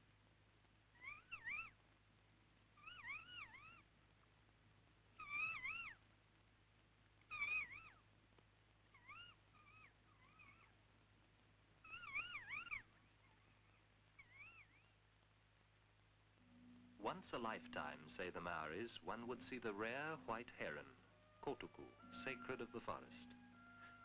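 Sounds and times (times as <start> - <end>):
parrot wavering calls: 1.0 - 1.8, 2.8 - 3.9, 5.2 - 6.0, 7.3 - 8.0, 8.9 - 10.8, 11.8 - 15.0.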